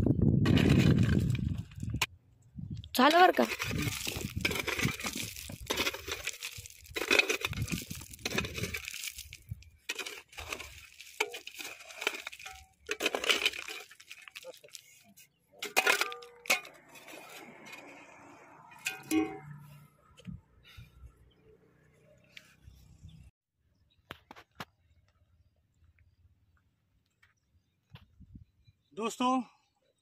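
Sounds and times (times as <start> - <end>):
stones clinking and rattling: 0.4 - 2.0, 3.3 - 17.9
mattock striking stony ground: 3.0 - 17.2.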